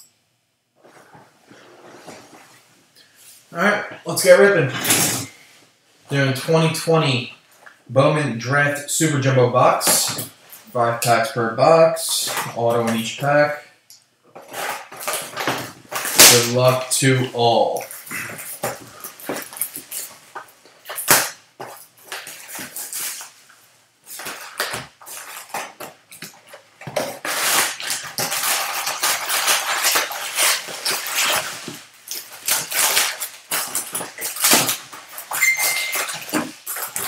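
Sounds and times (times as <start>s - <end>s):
card packs rustling: 14.3s - 37.0s
plastic wrap crinkling and tearing: 14.4s - 37.0s.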